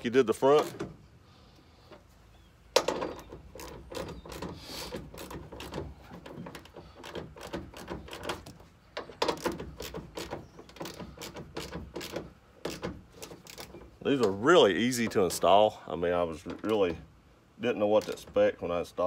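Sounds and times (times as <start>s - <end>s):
hand ratchet clicking: 3.1s - 14.4s.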